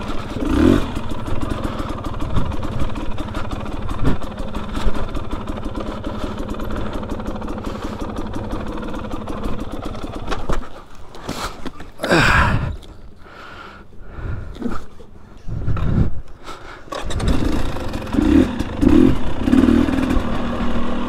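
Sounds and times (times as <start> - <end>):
two-stroke engine running: 0.0 - 11.0, 16.6 - 21.0.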